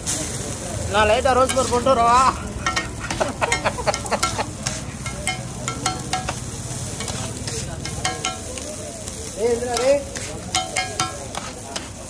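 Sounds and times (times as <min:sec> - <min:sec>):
eggs sizzling: 0:00.0 - 0:12.0
metal spatula scraping griddle: 0:00.9 - 0:08.6, 0:09.4 - 0:12.0.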